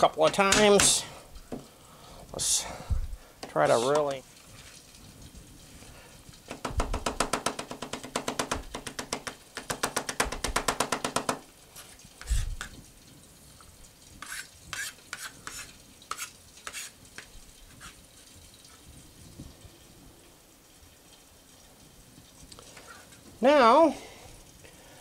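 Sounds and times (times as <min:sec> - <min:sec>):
knife chopping on plastic board: 0:06.5 - 0:11.4.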